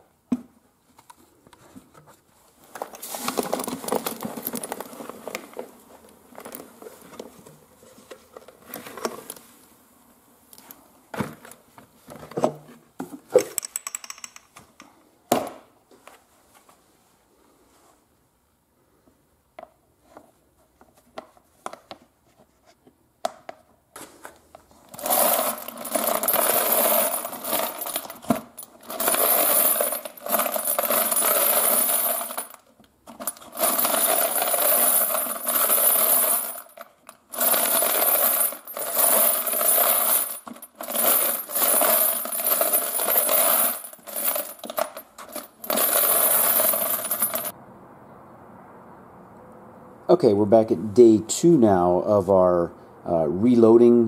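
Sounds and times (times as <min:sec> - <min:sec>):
brass cases rattling in strainer: 0:25.0 - 0:47.5.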